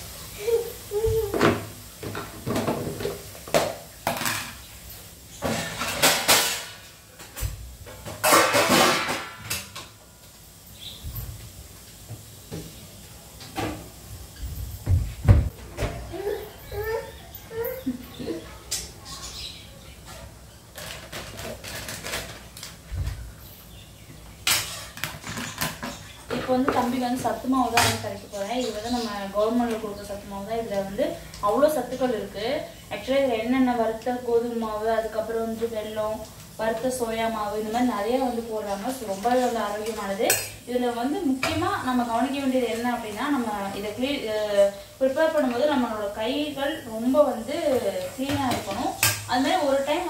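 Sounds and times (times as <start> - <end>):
kitchen utensils clattering: 0.5 - 10.0, 13.5 - 23.7, 24.4 - 33.5, 36.7 - 50.0
dishes and cutlery clinking: 4.1 - 10.0.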